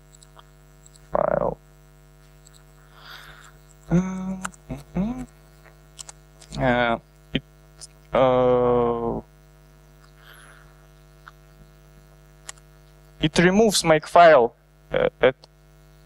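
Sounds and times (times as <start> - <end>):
electrical mains hum: 0.0 - 16.0
click: 0.1 - 1.0, 2.4 - 2.7, 12.4 - 13.0
man making hesitation sounds: 1.1 - 1.6, 3.0 - 5.4, 6.4 - 9.3, 14.9 - 15.5.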